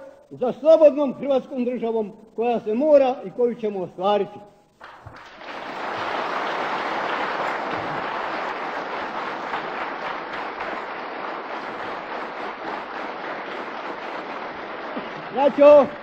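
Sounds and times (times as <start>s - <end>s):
crowd applauding: 4.8s - 16.0s.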